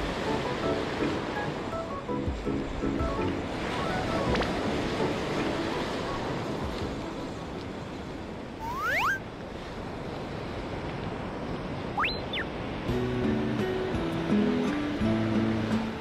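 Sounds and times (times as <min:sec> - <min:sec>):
ocean surf breaking on beach: 0:00.0 - 0:16.0
wind: 0:00.0 - 0:16.0
rising whistle-like tones: 0:08.6 - 0:09.2, 0:12.0 - 0:12.5.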